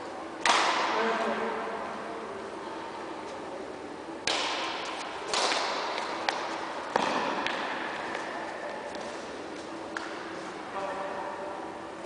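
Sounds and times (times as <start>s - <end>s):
racket hitting shuttlecock: 0.4s - 1.0s, 4.2s - 9.2s, 9.9s - 10.4s.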